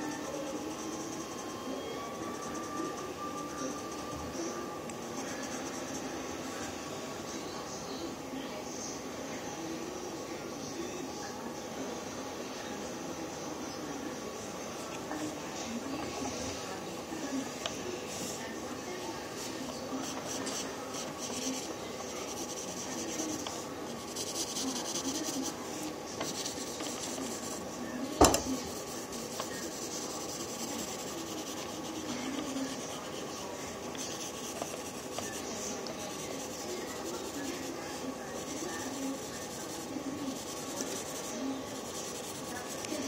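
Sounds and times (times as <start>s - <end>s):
pencil scratching on paper: 0.0s - 4.4s, 5.1s - 6.8s, 17.5s - 43.0s.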